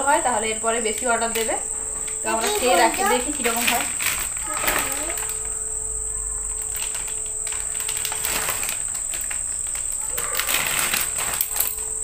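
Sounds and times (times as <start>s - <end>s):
high-pitched whine: 0.0s - 12.0s
plastic bag rustling: 0.0s - 12.0s.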